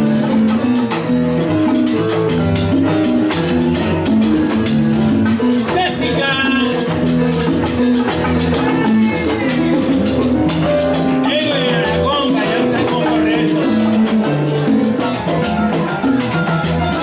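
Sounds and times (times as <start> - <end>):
electric keyboard chords: 0.0 - 17.0
latin percussion: 0.0 - 17.0.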